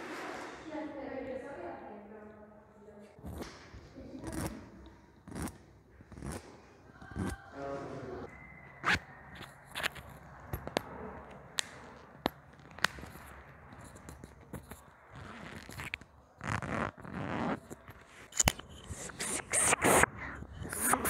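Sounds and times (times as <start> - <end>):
rough scraping rubs: 12.6 - 21.0.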